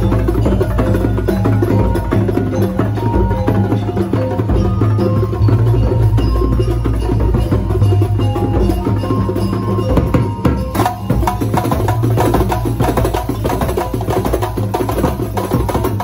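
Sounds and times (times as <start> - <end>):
frame drums fast rhythm: 0.0 - 16.0
large bass drum: 0.0 - 16.0
short pitched notes: 5.3 - 9.6.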